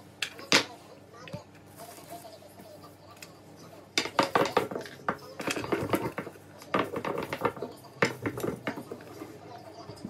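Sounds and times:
rolling pin knocking and rubbing: 4.0s - 9.3s.

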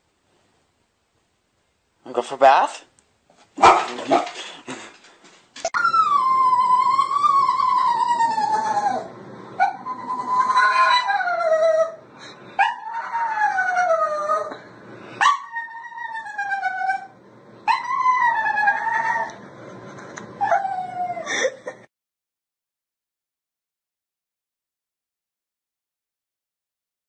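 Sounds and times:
dog howling: 5.7s - 12.0s, 12.6s - 14.6s, 15.2s - 19.4s, 20.4s - 21.3s.

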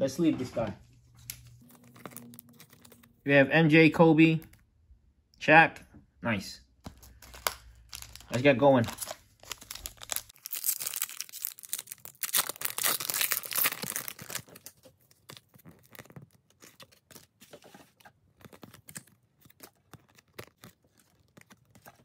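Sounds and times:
wrapper tearing and crinkling: 1.6s - 3.2s, 6.9s - 17.4s, 18.3s - 22.0s.

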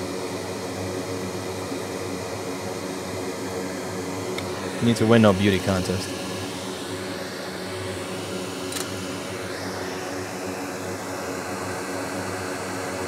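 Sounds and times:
fan hum: 0.0s - 13.0s
even hiss: 4.4s - 6.6s.

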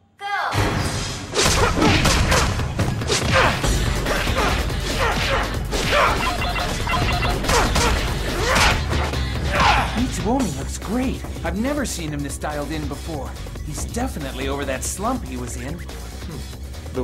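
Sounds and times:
action music: 1.4s - 17.0s.

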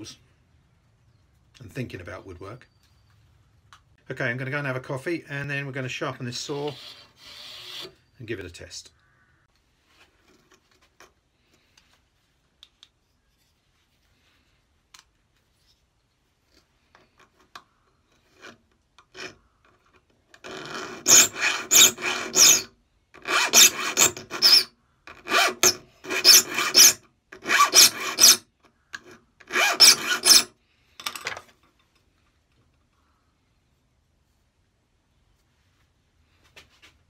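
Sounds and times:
file rasping on saw teeth: 20.5s - 24.7s, 25.3s - 28.4s, 29.5s - 30.5s.

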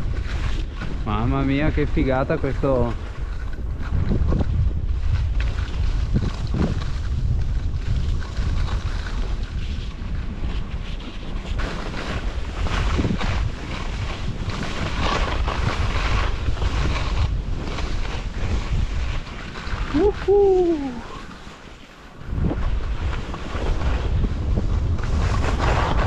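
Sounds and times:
wind buffeting microphone: 0.0s - 21.5s, 22.1s - 26.0s
skis running over snow: 0.0s - 26.0s
wordless voice call: 19.9s - 21.2s.

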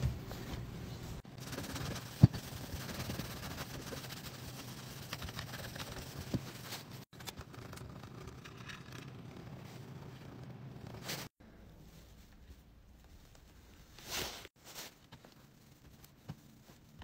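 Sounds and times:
scrubbing on plastic: 1.4s - 7.1s.

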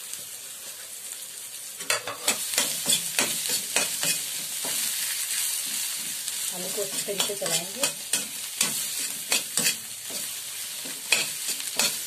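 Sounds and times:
food sizzling in oil: 0.0s - 12.0s
metal spoon scraping pan: 1.9s - 4.8s, 6.8s - 12.0s.

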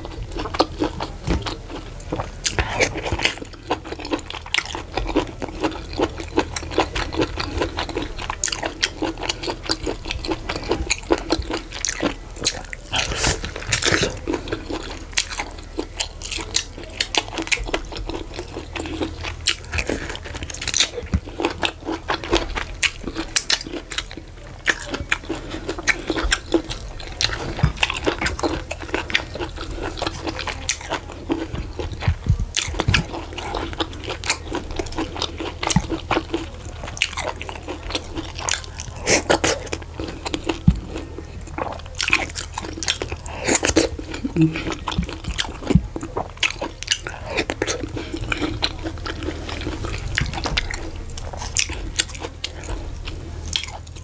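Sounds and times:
chewing and biting: 0.0s - 54.0s.

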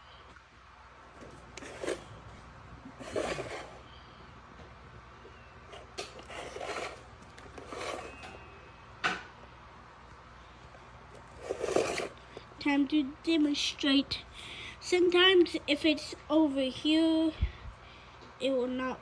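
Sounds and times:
handling rubs and scrapes: 1.2s - 3.8s, 5.7s - 8.4s, 11.1s - 12.5s.

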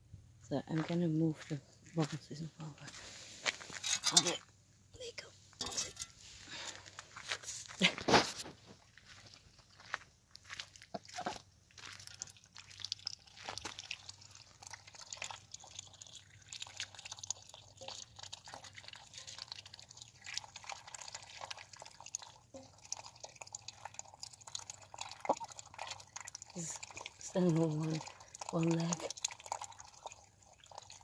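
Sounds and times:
duck dabbling in wet food: 12.0s - 31.0s.

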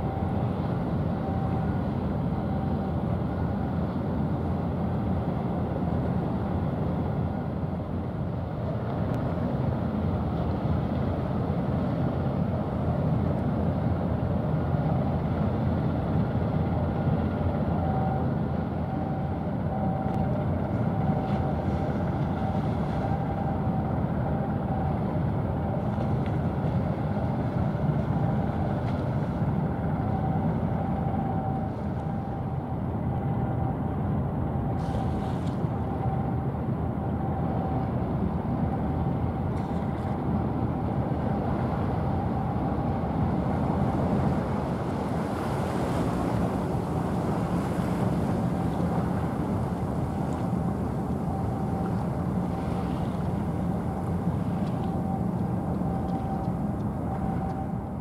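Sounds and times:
ship engine rumble: 0.0s - 58.0s
water: 0.0s - 58.0s
faint high whine: 17.7s - 58.0s.

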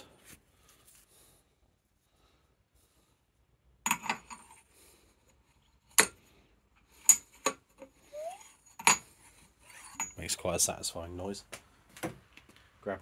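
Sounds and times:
metallic clinks and knocks: 8.6s - 9.2s.

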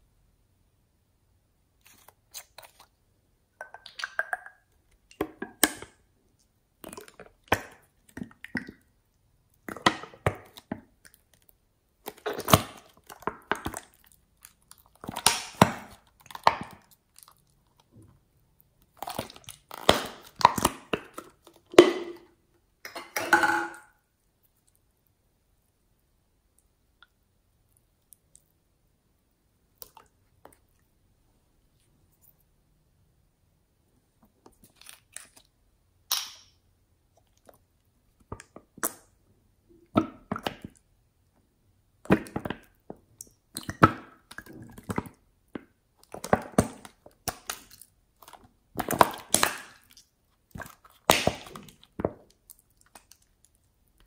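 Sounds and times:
slime squelching: 1.6s - 22.4s, 34.0s - 35.7s, 41.9s - 54.0s
air bubbles popping in slime: 15.0s - 16.9s, 19.0s - 22.2s, 48.8s - 52.3s.

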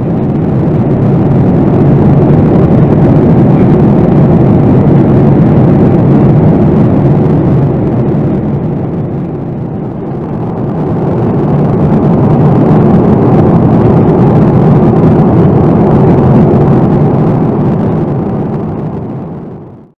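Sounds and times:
airplane cabin engine noise: 0.0s - 19.9s
rushing airflow: 0.0s - 19.9s.

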